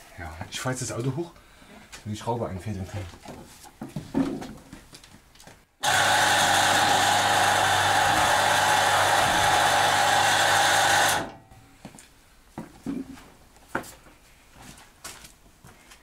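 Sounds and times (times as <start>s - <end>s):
hydraulic pump motor humming: 5.8s - 11.6s.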